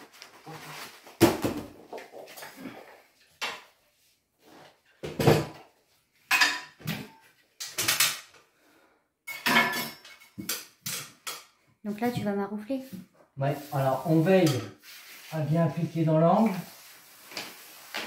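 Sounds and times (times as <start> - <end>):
tools and stepladder clattering: 6.3 - 8.4, 9.3 - 12.2.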